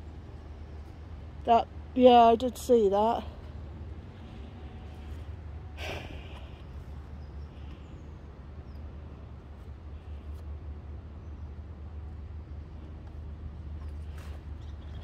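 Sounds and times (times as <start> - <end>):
distant city traffic rumble: 0.0 - 15.0
close breath: 5.8 - 6.7.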